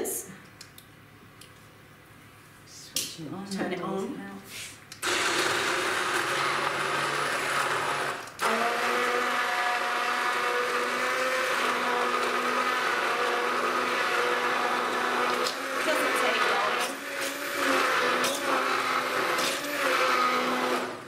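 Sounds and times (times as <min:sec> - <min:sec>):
stick blender running in soup: 0:05.0 - 0:21.0.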